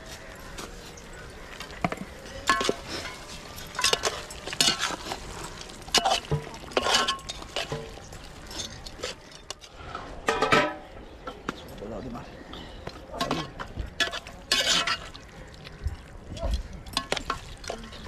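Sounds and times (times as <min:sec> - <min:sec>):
metal spoon clinking in pot: 0:02.4 - 0:05.1.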